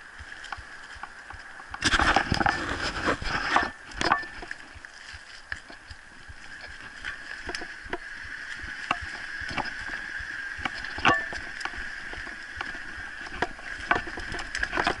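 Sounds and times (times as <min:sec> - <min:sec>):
bike tyres rolling on dirt: 0:00.0 - 0:15.0
bike rattling and knocking: 0:10.6 - 0:15.0.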